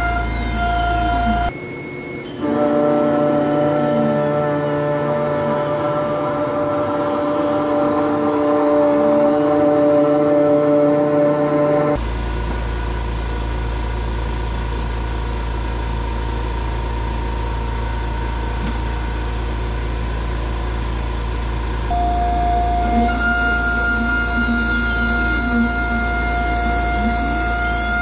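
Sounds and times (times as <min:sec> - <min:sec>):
hiss and low hum: 0:00.0 - 0:28.0
lower spindle tone: 0:00.0 - 0:28.0
mill spindle whine: 0:00.0 - 0:28.0
metal cutting noise: 0:22.0 - 0:28.0.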